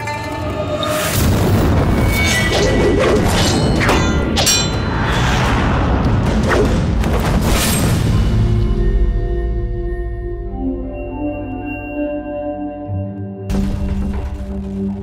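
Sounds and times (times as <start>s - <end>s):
dramatic music: 0.0s - 15.0s
whooshes: 4.8s - 7.0s.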